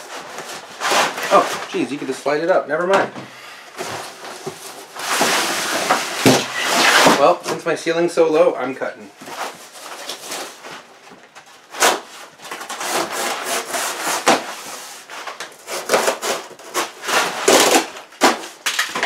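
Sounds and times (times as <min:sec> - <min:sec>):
blade cutting cardboard: 0:05.0 - 0:07.2, 0:11.8 - 0:18.4.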